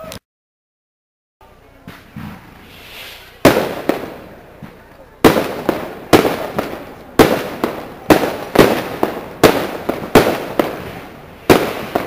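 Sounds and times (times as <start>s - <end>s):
small firework pops: 1.8s - 12.0s
firework shells bursting: 2.1s - 12.0s.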